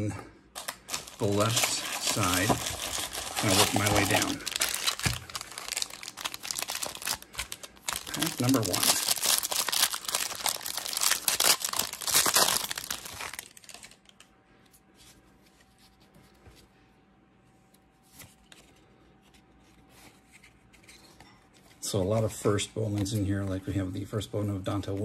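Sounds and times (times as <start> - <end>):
foil wrapper tearing and crinkling: 0.6 - 14.2.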